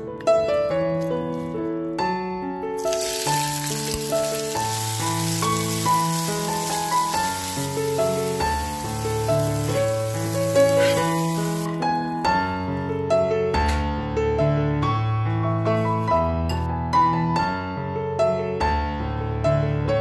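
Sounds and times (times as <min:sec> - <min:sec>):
background piano music: 0:00.0 - 0:20.0
food sizzling in hot oil: 0:02.8 - 0:11.8.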